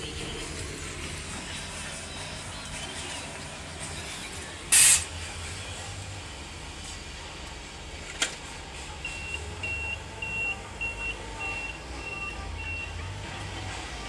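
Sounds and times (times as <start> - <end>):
low engine rumble: 0.0 - 14.0
forklift reversing alarm beeps: 9.0 - 13.1.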